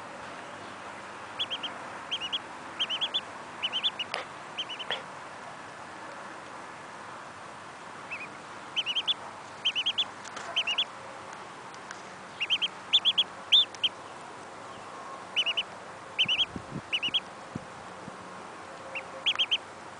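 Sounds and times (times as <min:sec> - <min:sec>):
duckling peeping: 0:01.3 - 0:05.1, 0:08.0 - 0:11.0, 0:12.3 - 0:14.0, 0:15.3 - 0:17.3, 0:18.8 - 0:19.6.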